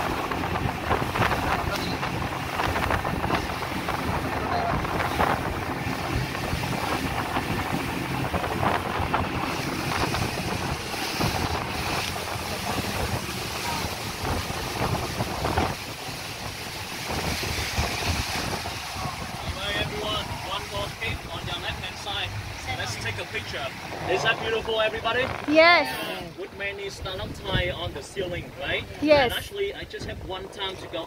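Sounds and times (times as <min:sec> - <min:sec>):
speedboat engine drone: 0:00.0 - 0:28.9
water rushing from hull: 0:00.0 - 0:31.0
wind buffeting microphone: 0:00.0 - 0:31.0.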